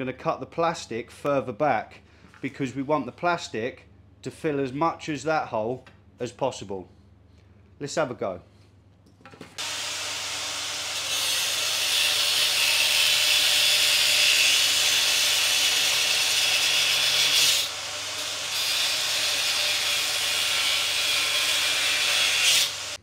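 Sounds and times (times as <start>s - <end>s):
power tool cutting plastic: 9.6s - 23.0s.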